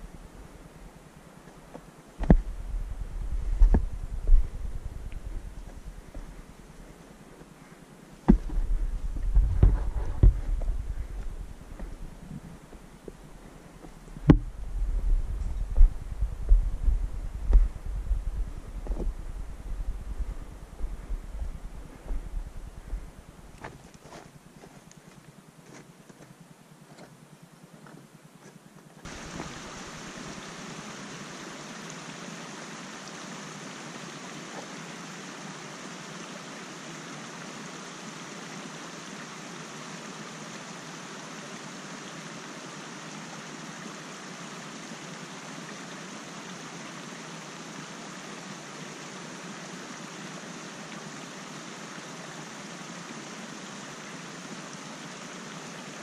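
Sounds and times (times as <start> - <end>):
steady rushing noise: 0.0 - 23.9, 29.1 - 32.5
footsteps on loose rock: 8.2 - 13.2, 20.8 - 26.3.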